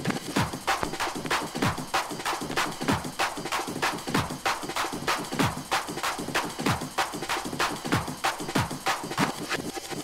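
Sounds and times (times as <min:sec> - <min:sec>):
electronic hardcore drum hits: 0:00.4 - 0:06.9.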